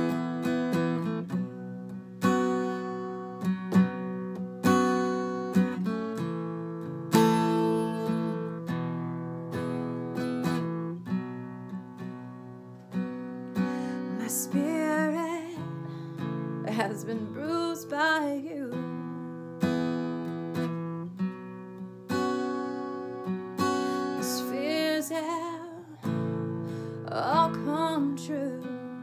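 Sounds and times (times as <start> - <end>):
acoustic guitar strummed chords: 0.0 - 29.0
person singing: 14.0 - 15.9.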